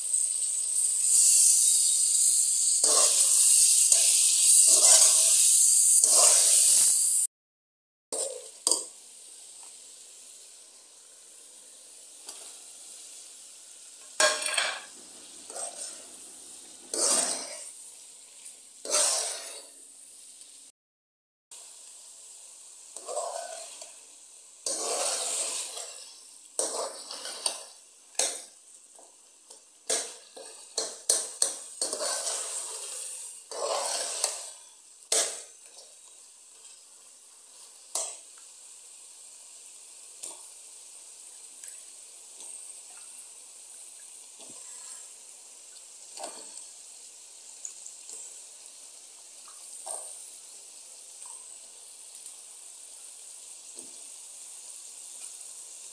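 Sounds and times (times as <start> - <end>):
utensil scraping a pan: 2.8 - 5.4, 6.0 - 6.8, 16.9 - 17.7, 18.8 - 19.7, 24.7 - 27.7, 30.4 - 34.6.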